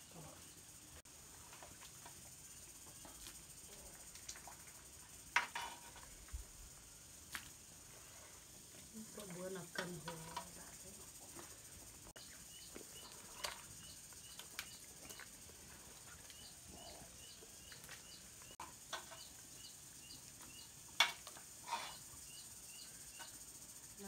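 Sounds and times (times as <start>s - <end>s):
bamboo shoots clattering into metal pot: 5.3s - 6.2s, 9.2s - 10.7s, 18.6s - 19.4s, 21.0s - 22.0s.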